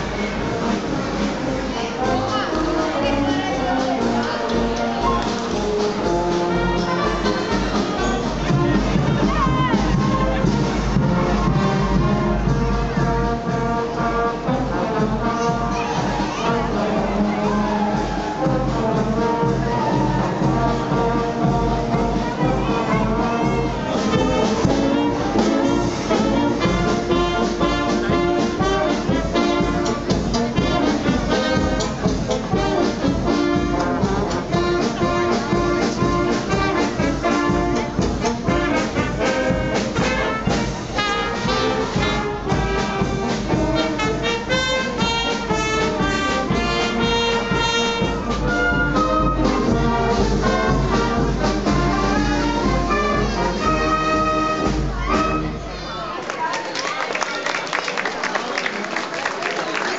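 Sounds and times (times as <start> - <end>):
brass band playing: 0.0 - 56.1.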